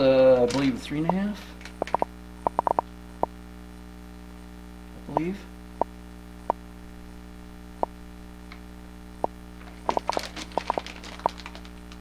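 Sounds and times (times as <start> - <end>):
steady electrical hum: 0.0 - 12.0
plastic packages crinkling: 0.3 - 0.8, 9.6 - 12.0.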